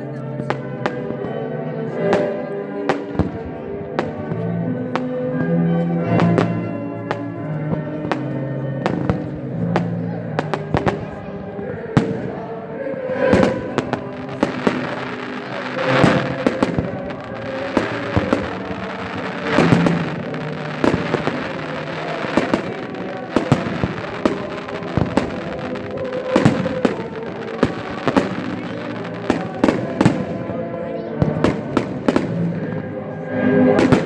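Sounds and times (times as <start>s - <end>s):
music: 0.0s - 34.0s
fireworks bursting: 0.4s - 34.0s.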